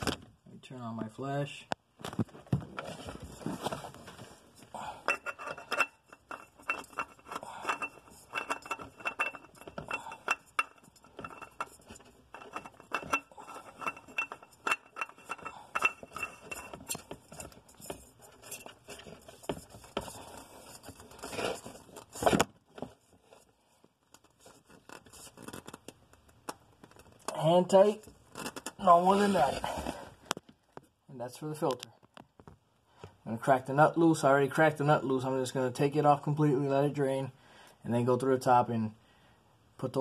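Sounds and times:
metallic clicks and scrapes: 5.0 - 22.4
knock and scrape: 11.1 - 23.4.

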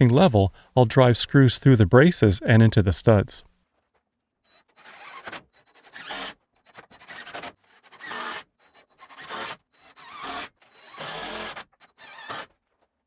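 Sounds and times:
cordless driver driving screws: 4.7 - 12.6.

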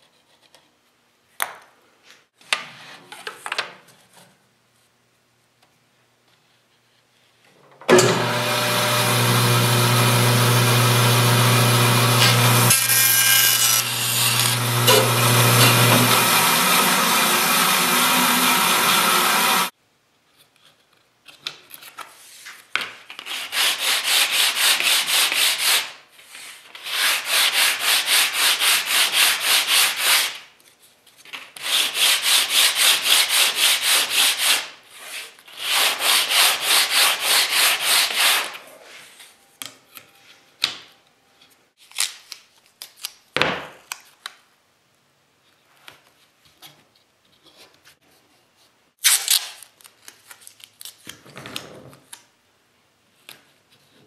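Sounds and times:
electric power tool running: 7.9 - 19.7
hand sanding wood: 10.6 - 19.7, 23.3 - 30.4, 31.6 - 38.6.

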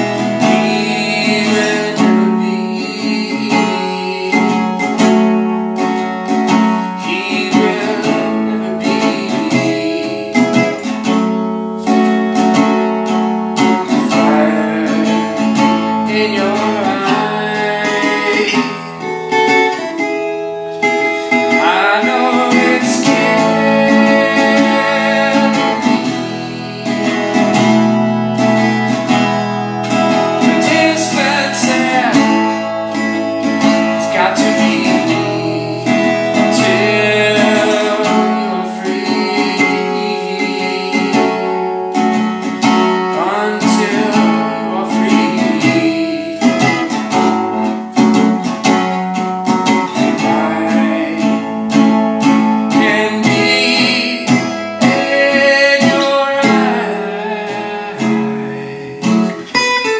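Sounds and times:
resonator guitar playing: 0.0 - 59.9.

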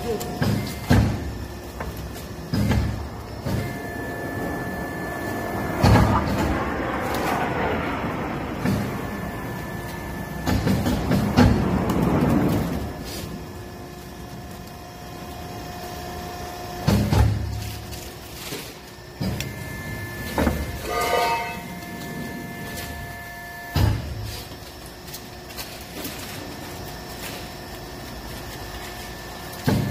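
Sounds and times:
machine hum: 0.0 - 29.9
metal scraping and clanking: 20.2 - 23.0.

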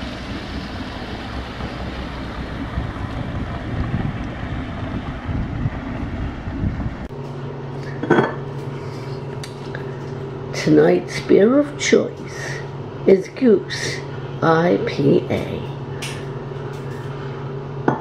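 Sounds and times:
low electrical hum: 0.0 - 18.0
wind buffeting microphone: 0.3 - 7.1.

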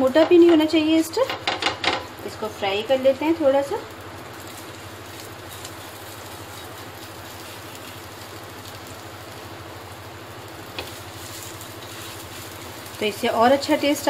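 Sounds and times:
food sizzling in oil: 0.0 - 14.0
low steady hum: 0.0 - 14.0.

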